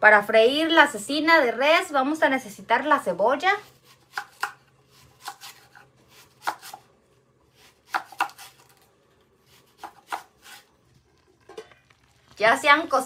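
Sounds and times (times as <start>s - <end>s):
knife chopping onion: 3.6s - 6.9s, 7.5s - 10.7s.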